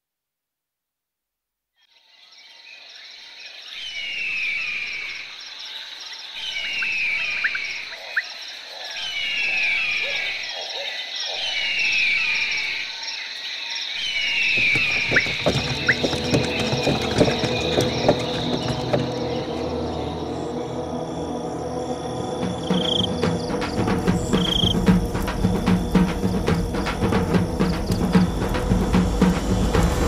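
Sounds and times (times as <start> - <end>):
insects buzzing: 4.8 - 30.0
falling bird call: 14.3 - 20.2
low rumble: 16.0 - 30.0.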